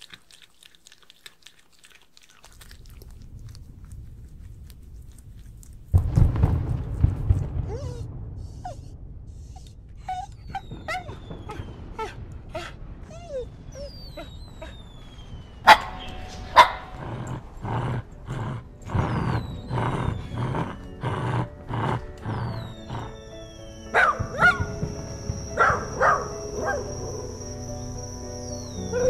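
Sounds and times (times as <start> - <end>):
sharp bangs: 5.9 - 17.6
dog whimpering: 7.5 - 14.9, 18.9 - 27.6, 28.5 - 29.0
dog barking: 15.7 - 17.0, 23.9 - 24.9, 25.5 - 27.0.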